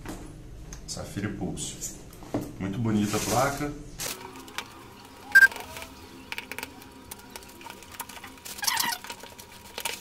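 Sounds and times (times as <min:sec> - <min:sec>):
packaging rustling: 0:07.6 - 0:10.0
sharp squeak: 0:08.6 - 0:09.0.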